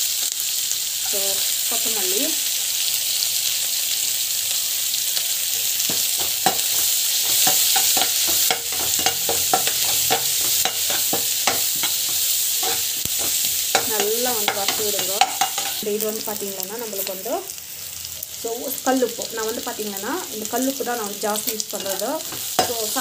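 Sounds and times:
food sizzling in hot oil: 0.0 - 23.0
ladle clicking and scraping pan: 5.6 - 15.8, 21.8 - 23.0.

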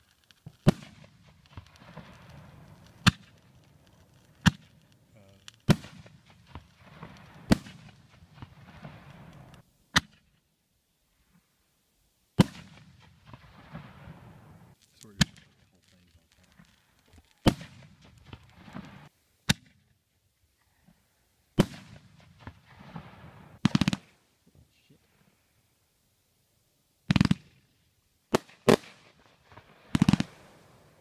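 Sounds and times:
fireworks bangs: 0.0 - 10.2, 12.4 - 19.8, 21.6 - 24.2, 28.3 - 31.0.

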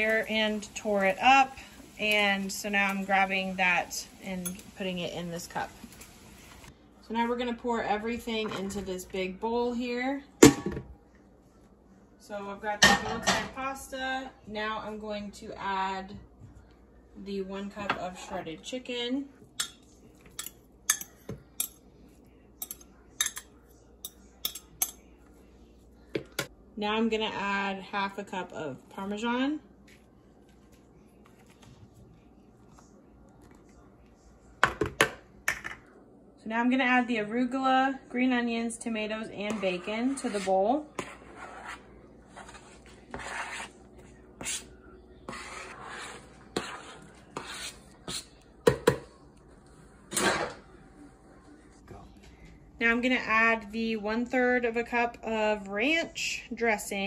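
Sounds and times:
fork scraping plastic cutting board: 39.5 - 43.8, 45.3 - 48.3.

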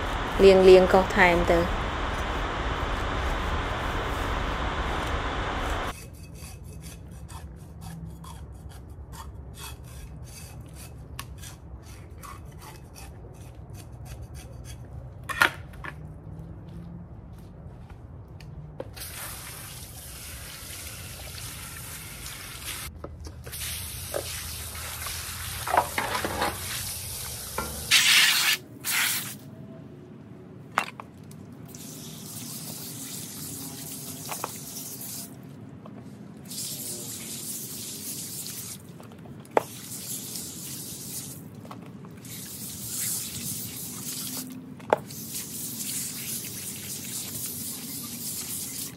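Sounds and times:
rubbing and scraping at a sink: 42.2 - 48.9.

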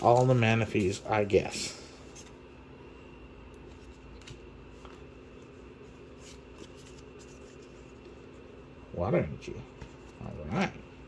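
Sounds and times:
trading cards rustling: 0.0 - 2.5, 3.6 - 8.4
steady low hum: 0.0 - 11.0.

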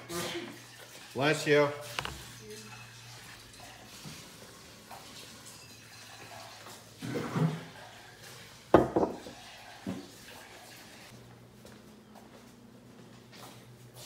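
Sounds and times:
dishes clattering on wooden table: 8.7 - 10.1
ceramic bowl knocking down: 8.8 - 9.3.

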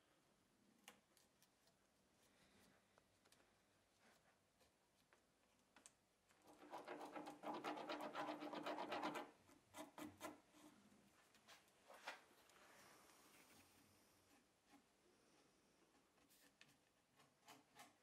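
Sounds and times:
putty knife scraping filler: 6.5 - 10.8.

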